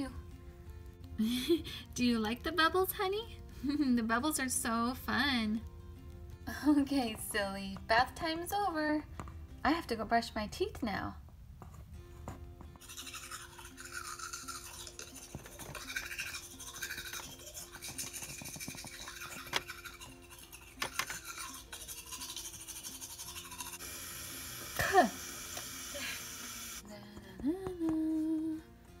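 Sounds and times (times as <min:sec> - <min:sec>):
quiet background music: 0:00.0 - 0:29.0
toothbrush scrubbing teeth: 0:12.8 - 0:24.0.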